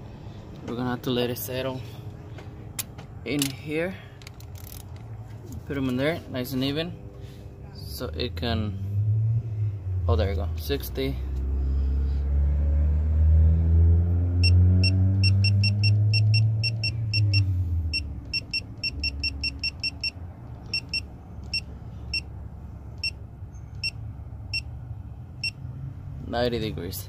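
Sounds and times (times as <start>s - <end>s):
low motor rumble: 0.0s - 18.9s
torque wrench beeping: 14.4s - 22.3s.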